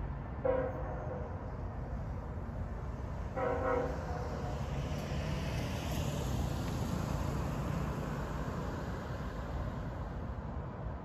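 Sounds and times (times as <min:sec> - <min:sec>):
car driving past: 0:03.5 - 0:10.3.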